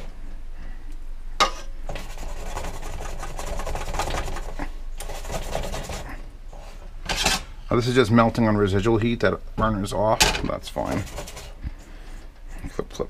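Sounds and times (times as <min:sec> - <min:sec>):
chicken rubbing in flour: 0:01.9 - 0:06.8, 0:10.8 - 0:11.6.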